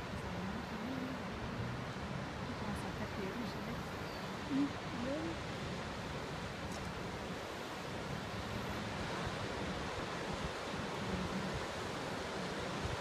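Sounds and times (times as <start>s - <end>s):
breaking wave rolling up river: 0.0s - 13.0s.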